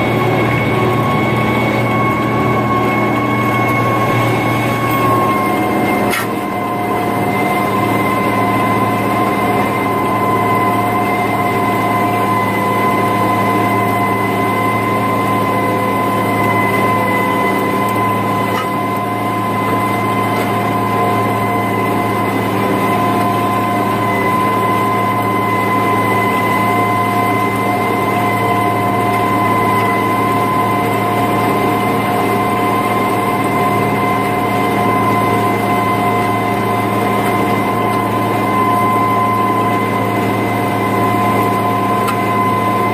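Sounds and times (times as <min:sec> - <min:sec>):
constant high whine: 0:00.0 - 0:42.9
tractor diesel engine under load: 0:00.0 - 0:42.9.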